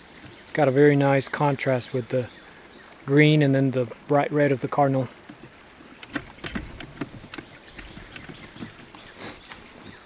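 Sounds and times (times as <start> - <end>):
footsteps crunching on trail: 6.3 - 10.0.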